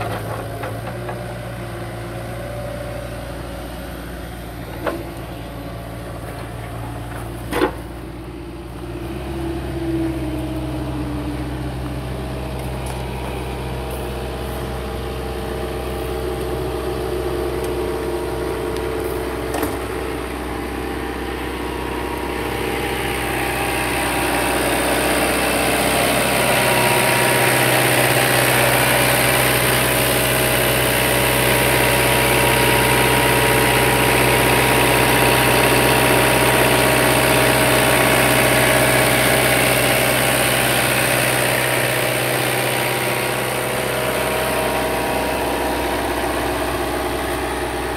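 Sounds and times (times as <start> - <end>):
diesel engine idling: 0.0 - 47.9.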